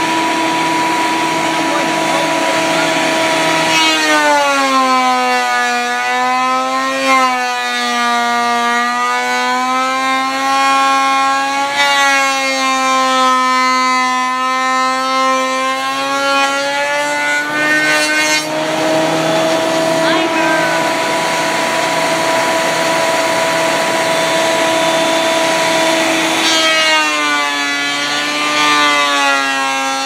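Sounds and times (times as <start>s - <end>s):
thickness planer motor whining: 0.0s - 30.0s.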